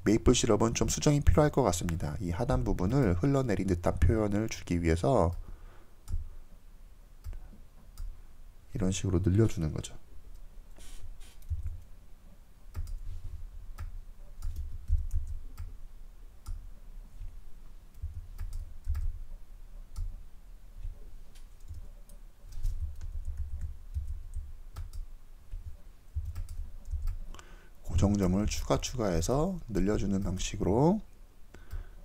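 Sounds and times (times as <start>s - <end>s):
computer mouse and keyboard clicks: 12.7s - 13.0s, 13.8s - 15.8s, 17.9s - 19.1s, 20.8s - 27.4s.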